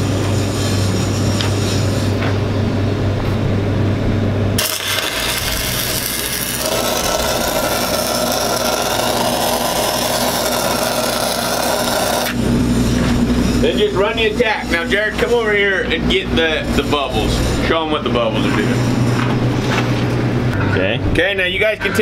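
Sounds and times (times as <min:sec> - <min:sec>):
low hum: 0:01.9 - 0:21.2
arc welding crackling hiss: 0:04.6 - 0:13.9.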